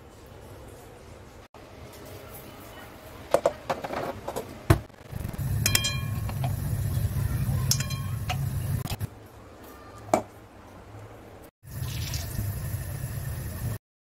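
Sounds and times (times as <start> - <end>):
steady low hum: 4.8 - 9.1
utensil striking iron wok: 5.5 - 9.1
kitchen utensils clinking: 5.6 - 9.1.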